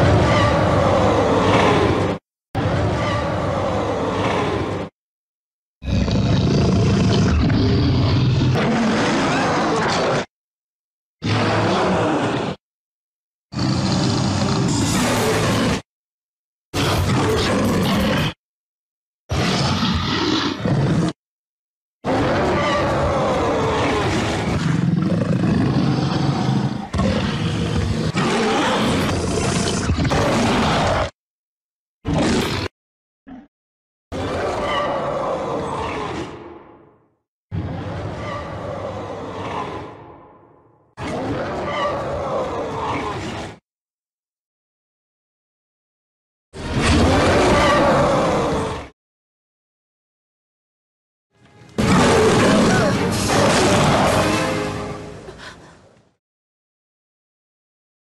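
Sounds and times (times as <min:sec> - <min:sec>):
creature growls: 0:00.0 - 0:05.0, 0:05.8 - 0:10.3, 0:11.2 - 0:12.6, 0:13.5 - 0:15.9, 0:22.0 - 0:31.2, 0:32.0 - 0:32.7, 0:34.1 - 0:43.6, 0:46.6 - 0:49.0, 0:51.8 - 0:55.5.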